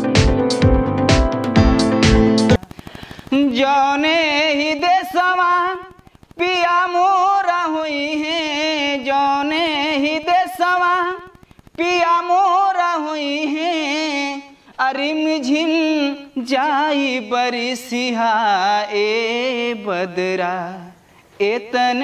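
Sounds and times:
band music: 0.0s - 2.6s
man singing unaccompanied: 1.6s - 22.0s.

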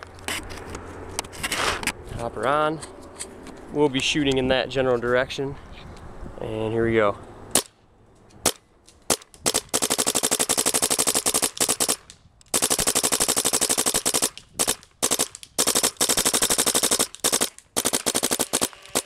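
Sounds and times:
paintball marker firing: 8.4s - 19.0s.

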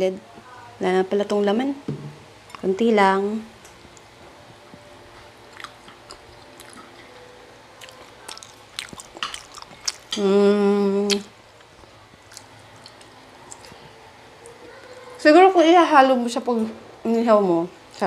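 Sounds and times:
chewing and lip smacks: 5.5s - 7.1s, 7.8s - 10.2s, 11.0s - 15.1s
person humming mmm: 10.1s - 11.3s.

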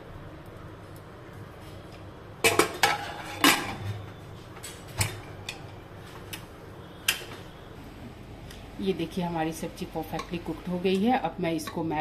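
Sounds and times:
metal lid clanking: 2.4s - 4.0s.

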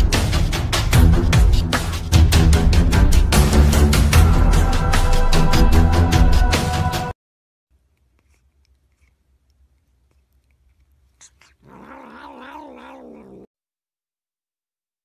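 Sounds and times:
cat yowling: 11.2s - 13.5s.

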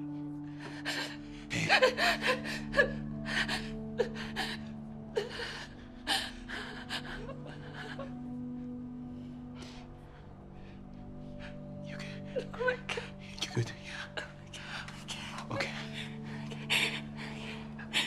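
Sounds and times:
low music drone: 0.0s - 18.0s
woman sobbing and wailing: 0.6s - 8.8s, 11.4s - 13.4s, 15.5s - 18.0s.

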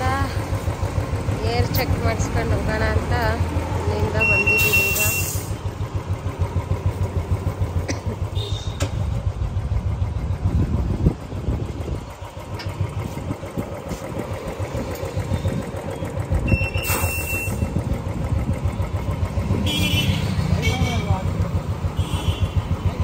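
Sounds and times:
motorcycle engine idling: 0.0s - 23.0s.

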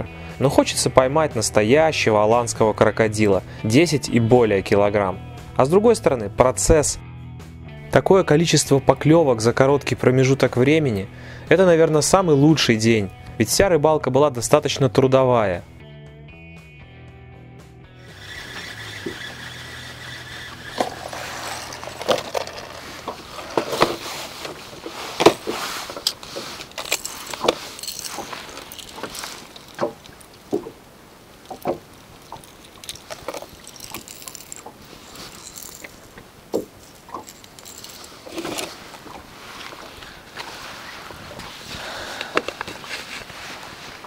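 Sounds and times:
fishing gear clicking and rattling: 18.0s - 40.5s, 42.0s - 43.4s
steady background hiss: 22.8s - 44.0s.

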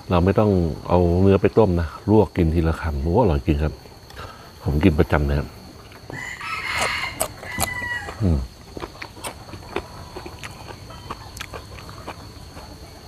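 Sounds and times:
rooster crowing: 6.1s - 8.4s.

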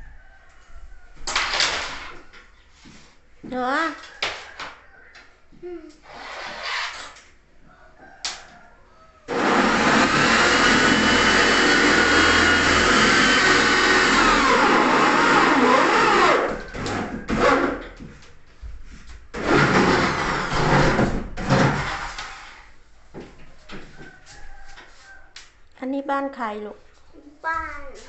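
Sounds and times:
electric power tool running: 9.3s - 16.5s.

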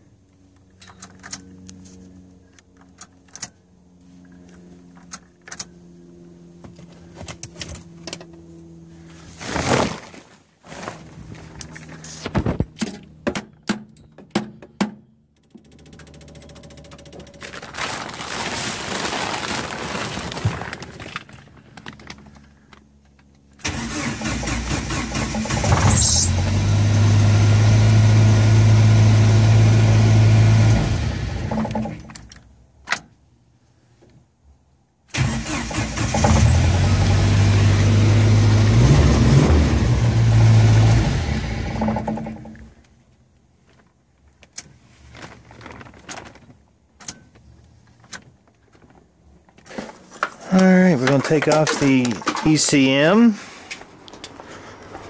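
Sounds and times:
engine cranking and running: 15.4s - 32.4s, 35.1s - 42.9s.

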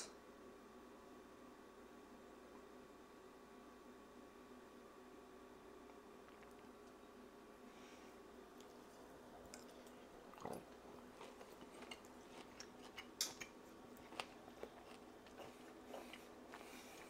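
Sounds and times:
chewing food: 5.9s - 7.1s, 8.5s - 17.0s.

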